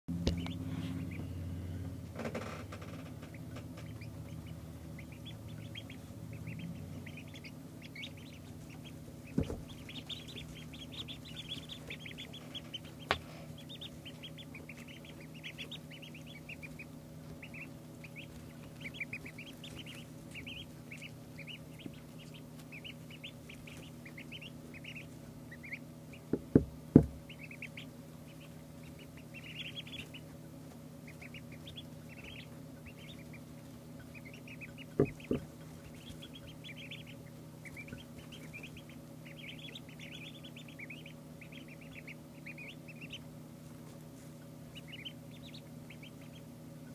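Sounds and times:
ducklings peeping: 0.1 - 46.9
steady low hum: 0.1 - 46.9
sharp knocks: 26.3 - 27.2.

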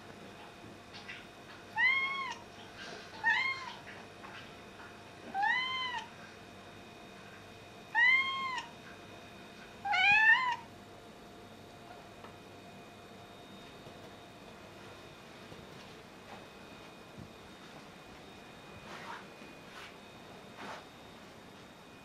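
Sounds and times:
cat meowing: 1.8 - 2.4, 5.3 - 6.1, 7.9 - 8.7, 9.8 - 10.7.

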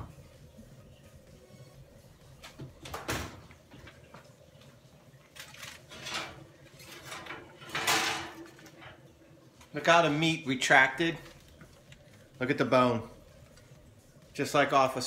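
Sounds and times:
pan scraping on metal rack: 5.7 - 9.0.

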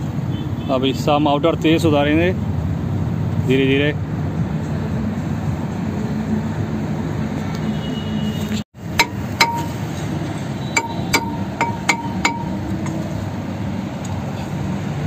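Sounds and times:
hammer tapping metal brake drum: 8.9 - 10.0, 10.8 - 13.0.

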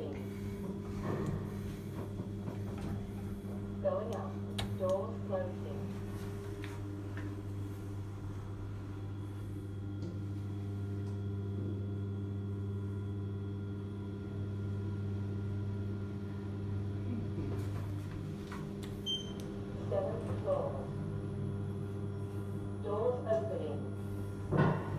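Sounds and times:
lift car hum: 0.0 - 11.2.

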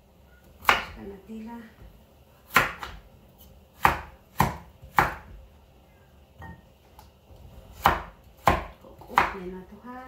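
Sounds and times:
knife chopping on wooden board: 2.5 - 5.4, 7.6 - 9.4.

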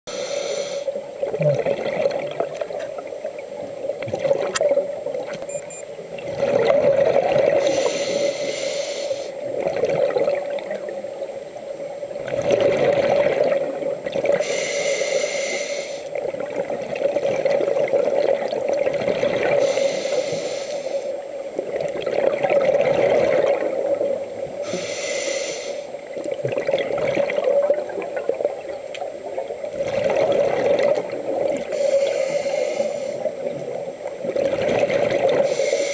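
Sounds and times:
diver breathing through regulator: 0.1 - 1.0, 7.6 - 9.4, 14.4 - 16.1, 19.5 - 21.2, 24.6 - 26.0, 31.7 - 33.4, 35.4 - 35.9
low steady hum: 0.1 - 35.9.

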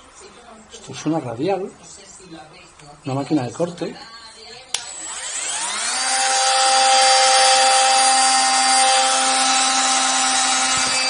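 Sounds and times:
angle grinder motor whining: 4.8 - 11.0.

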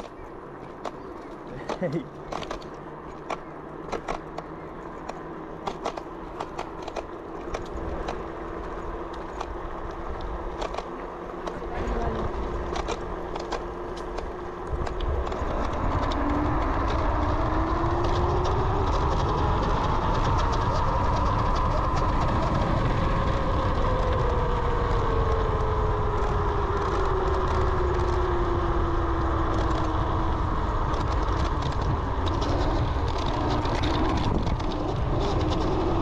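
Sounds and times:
clicks and rattles: 0.0 - 17.0
electric motor whine: 2.4 - 36.0
wind rumble on microphone: 4.8 - 36.0.

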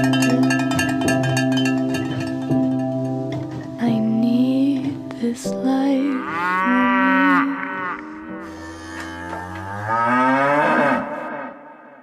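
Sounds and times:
held music notes: 0.0 - 11.2
cow mooing: 6.2 - 11.9.

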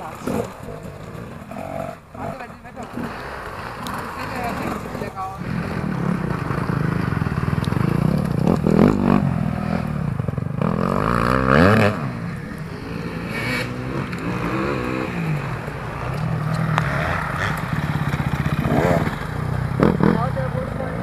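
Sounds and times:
dirt bike engines revving: 0.0 - 21.0.

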